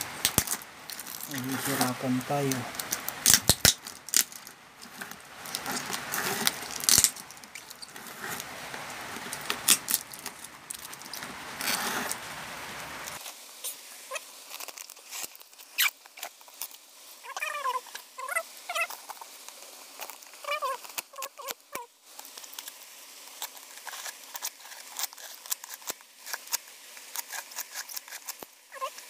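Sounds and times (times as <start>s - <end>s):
plastic wrapping crinkling: 0.0s - 29.0s
scissors snipping: 3.2s - 4.3s.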